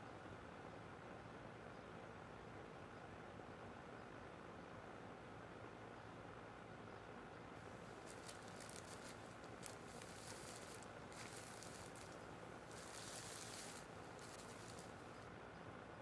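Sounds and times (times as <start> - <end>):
plastic bag flapping in wind: 7.9 - 15.2.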